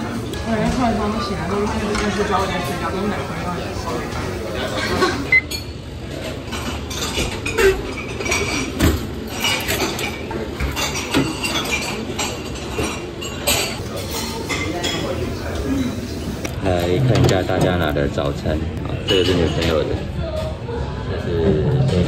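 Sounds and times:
dishes and cutlery clinking: 0:04.1 - 0:15.6, 0:19.0 - 0:19.9.

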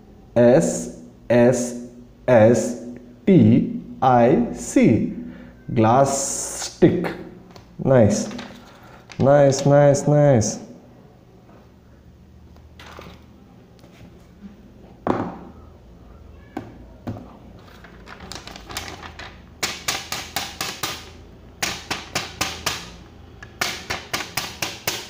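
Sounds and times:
plastic crinkling: 0:17.6 - 0:19.4.

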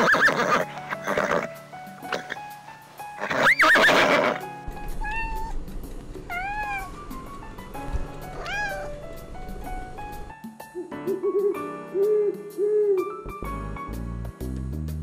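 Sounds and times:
background music: 0:00.0 - 0:15.0
kitten meowing: 0:04.9 - 0:05.6, 0:06.3 - 0:07.4, 0:08.2 - 0:09.0.

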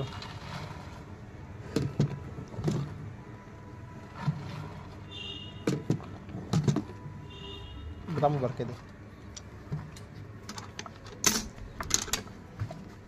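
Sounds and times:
milk pouring: 0:00.0 - 0:01.4, 0:03.9 - 0:06.2.

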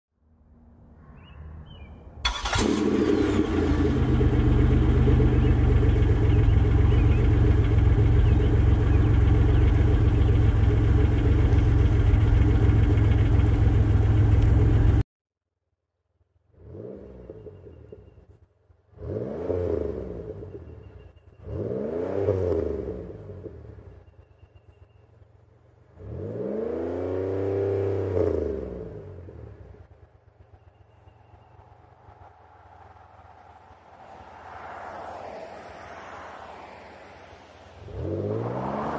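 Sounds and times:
car engine idling: 0:02.2 - 0:15.0
car engine revving: 0:02.2 - 0:15.0, 0:26.0 - 0:29.6, 0:37.8 - 0:38.9.

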